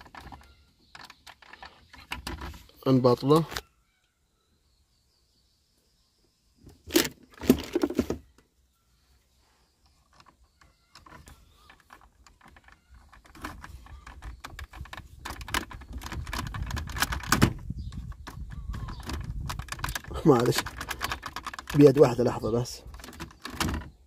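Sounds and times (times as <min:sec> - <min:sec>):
handling noise: 0:06.6 - 0:08.3, 0:09.9 - 0:24.0.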